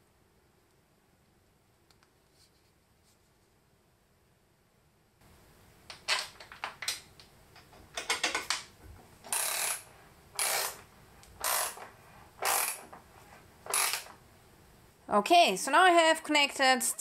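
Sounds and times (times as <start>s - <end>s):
ratchet wrench ratcheting: 9.3s - 10.8s, 11.4s - 12.9s, 13.7s - 14.1s.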